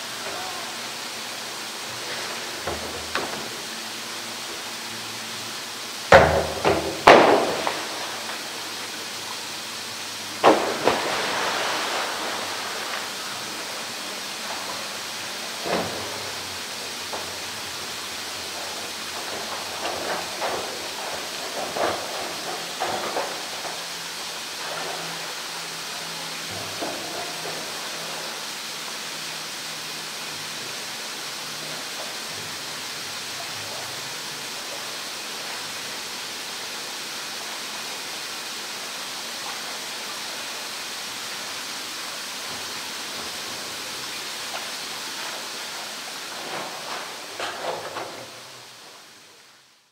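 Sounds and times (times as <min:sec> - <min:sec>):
running water rushing: 0:00.0 - 0:49.9
small splashes: 0:06.4 - 0:35.8
large splash into water: 0:10.4 - 0:14.0.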